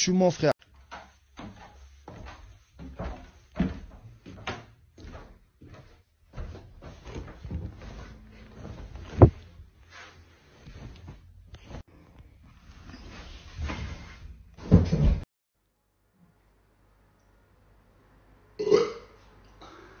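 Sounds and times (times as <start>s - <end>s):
wooden knocks and thumps on ladder: 0.7s - 9.5s, 14.6s - 15.2s.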